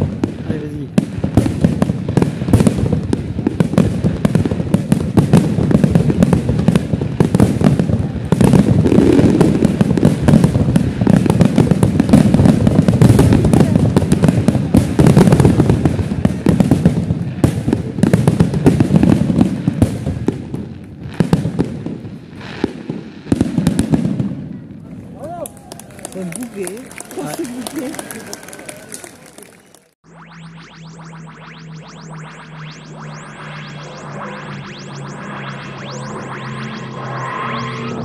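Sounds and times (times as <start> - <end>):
fireworks booming and crackling: 0.0 - 30.0.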